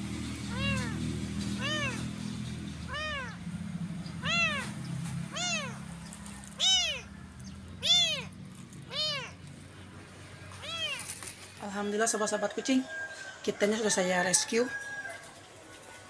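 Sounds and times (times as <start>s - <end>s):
kitten meowing: 0.5s - 2.2s, 2.8s - 3.4s, 4.1s - 7.1s, 7.8s - 9.4s, 10.5s - 11.2s.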